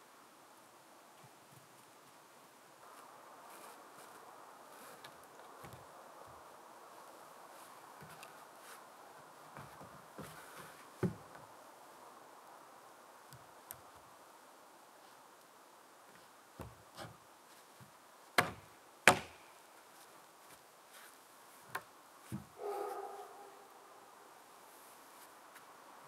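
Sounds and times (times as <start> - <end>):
knocks of wood being struck: 18.4 - 19.4.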